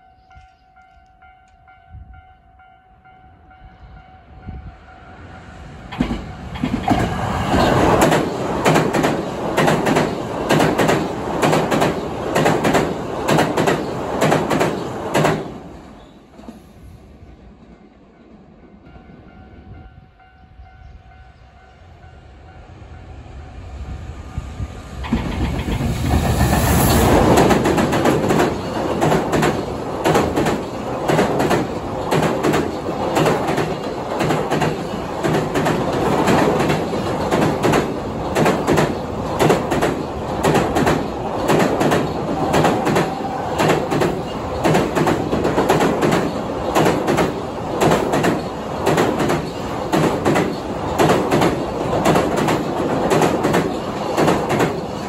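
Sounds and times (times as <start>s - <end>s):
electric locomotive passing: 0.0s - 55.0s
train wheels clattering over rail joints: 6.0s - 15.6s, 25.0s - 55.0s.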